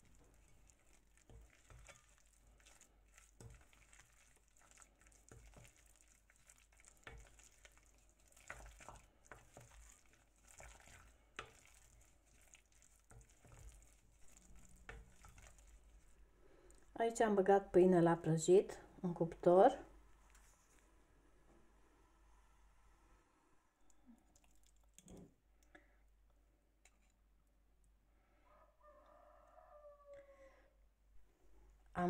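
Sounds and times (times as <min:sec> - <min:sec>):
soft wet scraping: 0:00.0 - 0:16.9, 0:20.1 - 0:21.0, 0:26.8 - 0:27.3.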